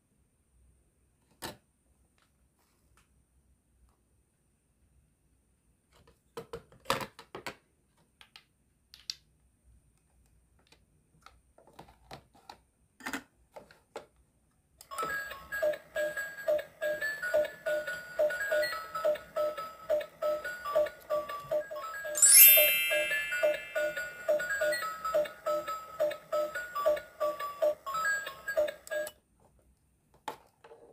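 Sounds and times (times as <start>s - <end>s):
electronic beeping tune: 21.8s - 25.7s.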